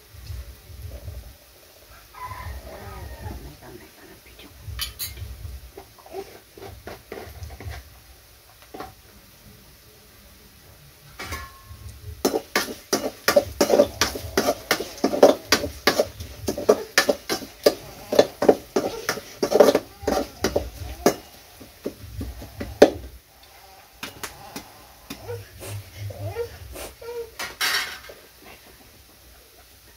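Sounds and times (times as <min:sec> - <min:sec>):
metal spatula scraping a pan: 0:11.2 - 0:23.0.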